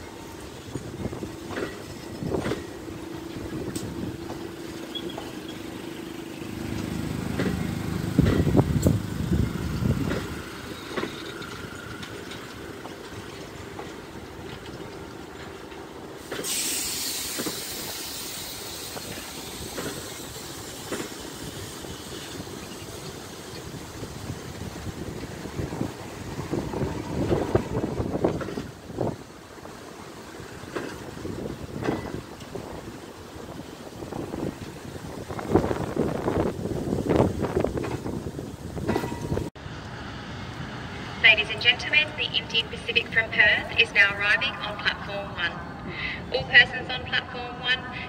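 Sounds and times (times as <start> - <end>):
train wheels clicking over rail joints: 0.2 - 39.5
wind hiss on microphone: 16.4 - 39.5.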